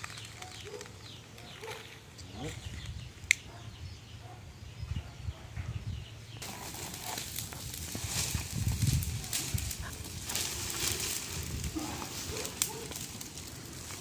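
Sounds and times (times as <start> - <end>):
brush fire crackling: 0.0 - 3.5, 6.4 - 14.0.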